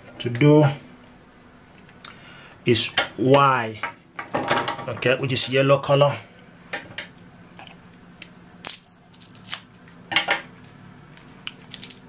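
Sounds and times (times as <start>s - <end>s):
plastic wrapping crinkling and tearing: 8.6s - 9.8s, 10.6s - 12.0s.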